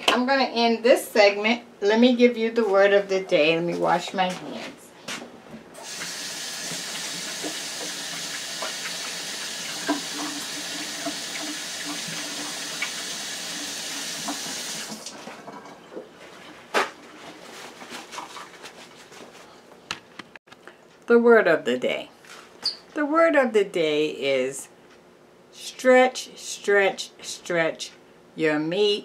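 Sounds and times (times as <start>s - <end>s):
tap running over washing hands: 5.8s - 15.7s.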